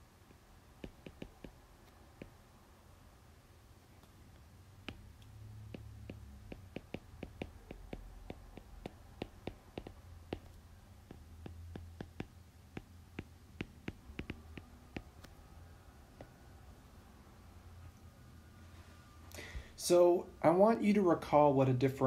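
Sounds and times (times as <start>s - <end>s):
faint low hum: 0.0s - 22.0s
stylus clicking on tablet screen: 0.3s - 2.5s, 4.0s - 15.5s, 16.2s - 16.4s.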